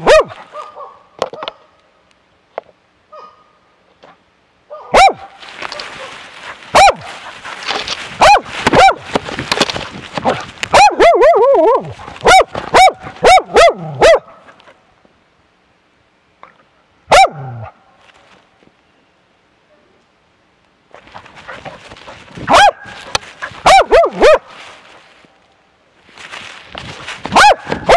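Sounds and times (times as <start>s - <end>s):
dog barking loudly: 0.0s - 1.6s, 4.7s - 7.3s, 8.2s - 9.1s, 10.2s - 14.4s, 17.1s - 17.7s, 22.4s - 24.5s, 27.3s - 27.9s
lower-pitched dog barking: 0.0s - 1.8s, 3.1s - 3.6s, 4.7s - 9.1s, 10.2s - 14.7s, 17.1s - 17.8s, 20.9s - 24.6s, 27.3s - 27.9s.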